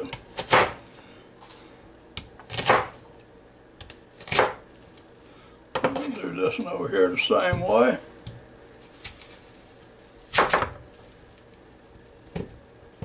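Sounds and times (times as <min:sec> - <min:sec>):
knife cutting onion on board: 0:00.0 - 0:00.8, 0:02.2 - 0:03.0, 0:03.8 - 0:04.6, 0:10.3 - 0:10.8.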